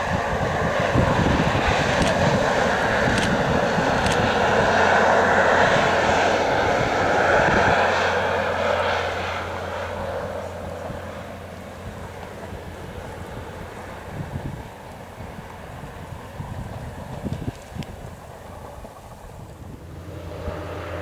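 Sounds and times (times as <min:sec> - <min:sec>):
diesel locomotive engine drone: 0:00.0 - 0:21.0
train coaches rumbling by: 0:00.0 - 0:21.0
sharp clicks: 0:02.0 - 0:02.2, 0:03.1 - 0:03.4, 0:04.0 - 0:04.2.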